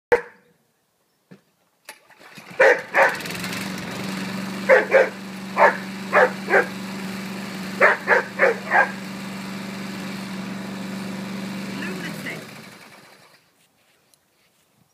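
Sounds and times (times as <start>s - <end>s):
dog barking: 0.1s - 0.4s, 2.6s - 3.2s, 4.7s - 6.7s, 7.8s - 9.0s
lawnmower engine running: 2.0s - 13.5s.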